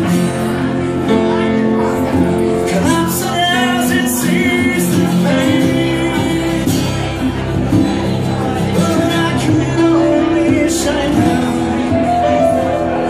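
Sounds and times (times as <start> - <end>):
live band music: 6.7 - 13.0.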